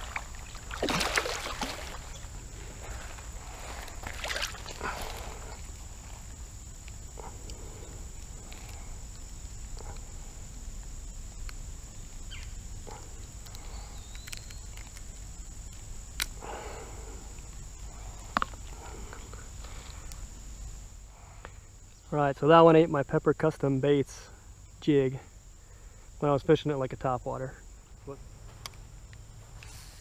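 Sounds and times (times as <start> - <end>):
hand splashing into water: 0.0 - 2.1, 4.0 - 4.8.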